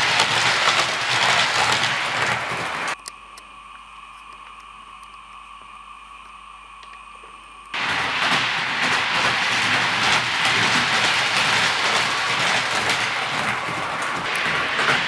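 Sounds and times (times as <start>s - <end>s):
model train wheels rattling: 0.0s - 3.0s, 7.8s - 15.0s.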